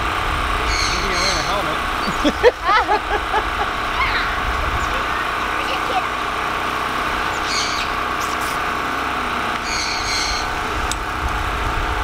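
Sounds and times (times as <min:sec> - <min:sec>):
outdoor background rush: 0:00.0 - 0:12.0
high bird calls: 0:00.6 - 0:02.6, 0:03.9 - 0:05.6, 0:07.2 - 0:08.6, 0:09.6 - 0:10.6.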